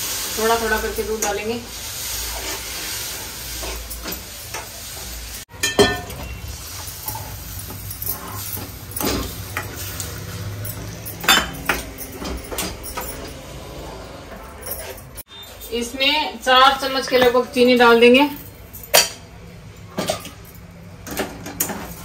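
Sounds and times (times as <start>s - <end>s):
semolina sizzling in a pan: 0.0s - 11.5s
spoon scraping and knocking pan: 2.2s - 13.6s.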